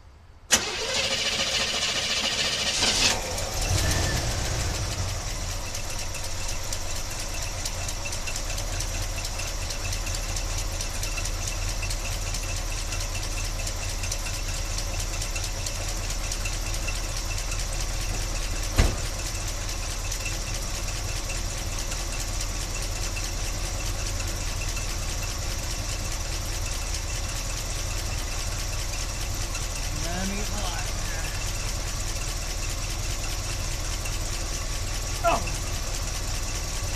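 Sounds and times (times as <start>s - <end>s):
car engine idling: 0.0s - 36.9s.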